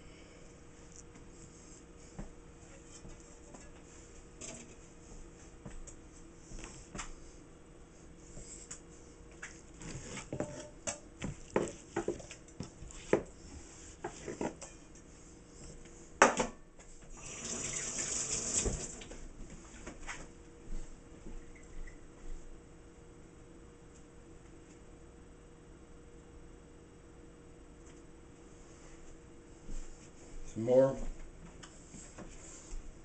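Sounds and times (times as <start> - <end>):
kitchen tap running into sink: 17.2 - 19.1.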